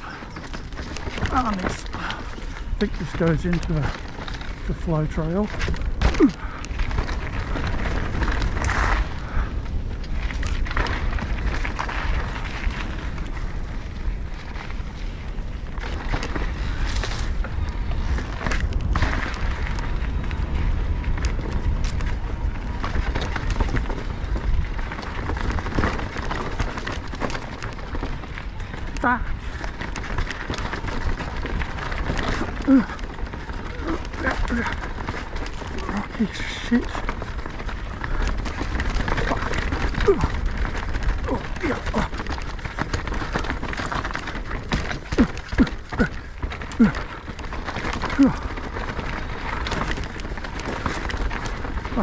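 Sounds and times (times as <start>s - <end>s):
bike clicks and rattles: 0.0s - 52.0s
bike tyre noise: 0.0s - 52.0s
wind rumble on microphone: 0.0s - 52.0s
rider grunting: 6.0s - 6.9s, 31.8s - 52.0s.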